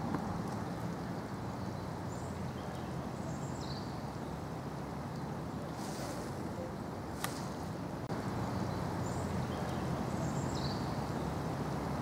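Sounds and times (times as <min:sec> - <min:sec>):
heavy rain hiss: 0:03.0 - 0:12.0.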